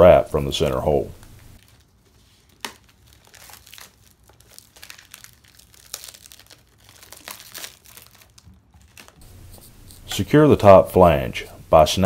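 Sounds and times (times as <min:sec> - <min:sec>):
plastic wrap crinkling and tearing: 0:01.6 - 0:09.2.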